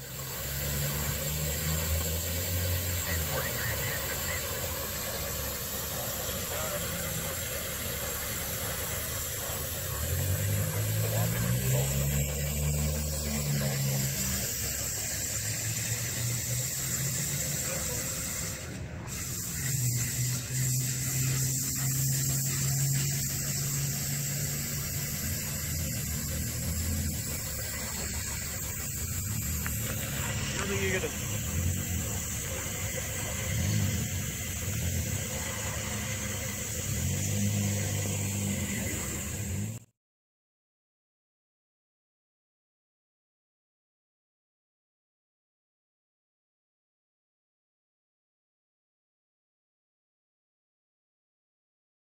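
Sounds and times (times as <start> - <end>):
floodwater rushing: 0.0 - 18.7, 19.7 - 39.7
vehicle engine idling: 0.0 - 39.9.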